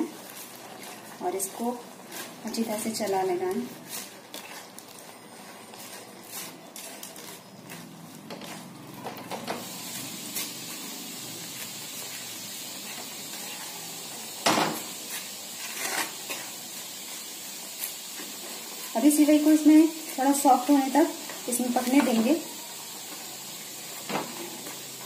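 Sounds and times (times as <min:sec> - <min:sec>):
soft sizzle: 0:00.0 - 0:25.0
spatula scraping metal pan: 0:15.6 - 0:16.5.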